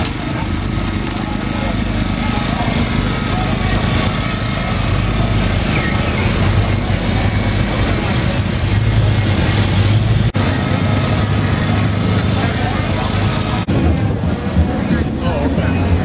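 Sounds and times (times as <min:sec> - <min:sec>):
engine rumbling: 0:00.0 - 0:16.0
people talking: 0:00.0 - 0:16.0.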